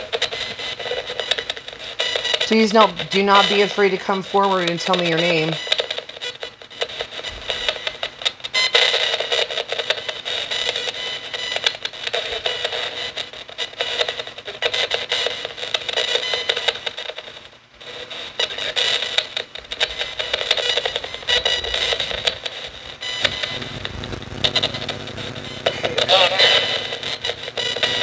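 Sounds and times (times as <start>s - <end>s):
choppy radio static: 0.0s - 8.2s, 17.8s - 28.0s.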